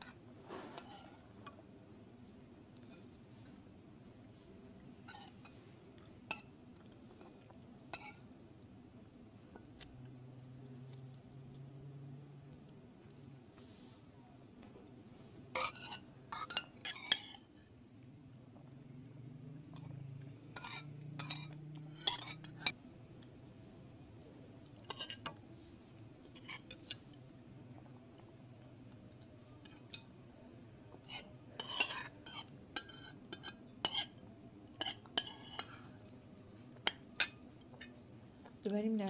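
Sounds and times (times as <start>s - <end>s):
spoons clinking on plates: 20.6s - 22.8s, 31.1s - 34.2s, 34.8s - 35.9s.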